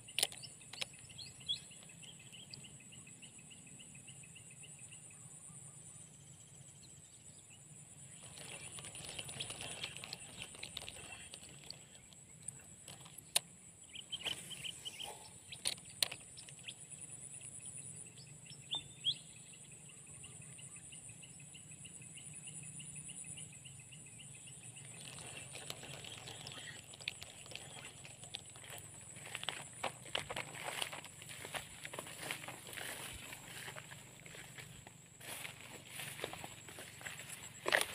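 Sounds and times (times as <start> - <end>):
insects chirping: 0.0 - 37.9
rustling: 8.2 - 13.4, 24.8 - 37.9.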